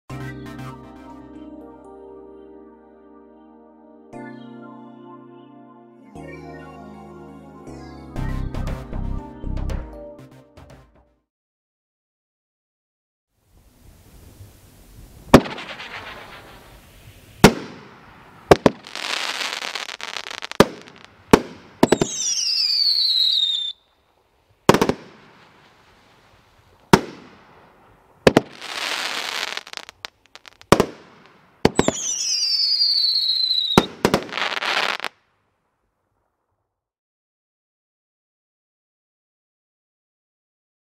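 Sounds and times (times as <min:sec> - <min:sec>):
firework crackling: 0:13.5 - 0:35.1
falling firework whistle: 0:13.8 - 0:24.0, 0:31.7 - 0:35.1
firework bangs: 0:14.0 - 0:23.8, 0:24.6 - 0:35.1.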